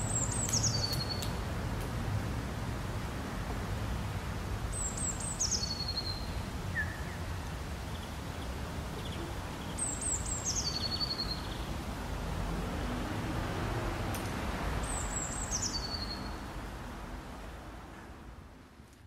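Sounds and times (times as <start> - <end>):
small bird singing: 0.1 - 1.3, 4.7 - 7.3, 7.9 - 11.7, 14.8 - 16.4.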